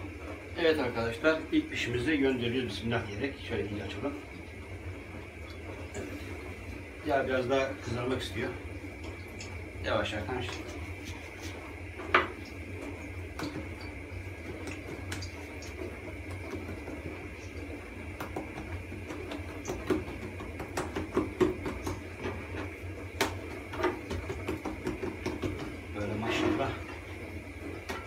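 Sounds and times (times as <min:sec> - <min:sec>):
steady low hum: 0:00.0 - 0:28.0
hands patting dough on board: 0:18.1 - 0:25.9.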